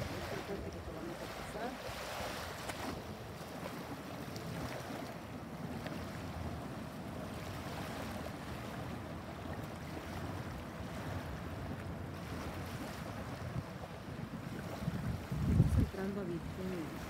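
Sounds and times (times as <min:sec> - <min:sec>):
small waves lapping at shore: 0:00.0 - 0:17.0
wind buffeting microphone: 0:11.0 - 0:17.0.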